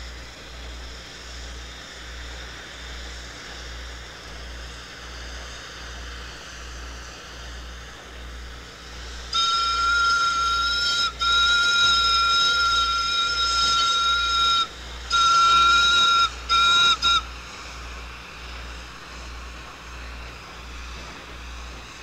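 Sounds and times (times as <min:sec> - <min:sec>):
steam locomotive whistle blasts: 0:08.8 - 0:18.2.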